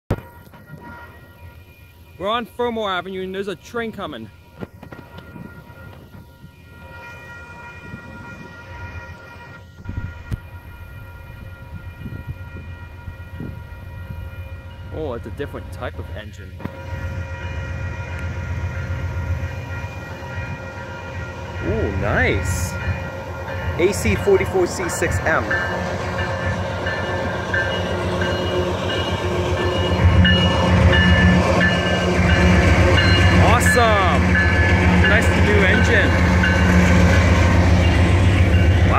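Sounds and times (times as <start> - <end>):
diesel locomotive engine rumble: 0.1 - 38.9
level crossing bell ringing: 19.7 - 37.2.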